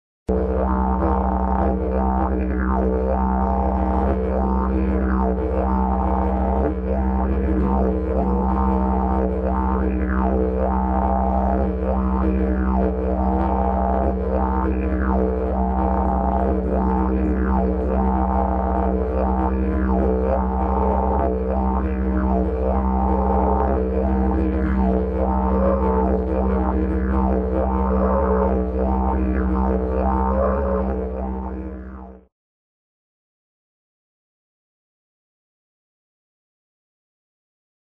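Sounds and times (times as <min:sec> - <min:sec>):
didgeridoo drone: 0:00.3 - 0:32.3.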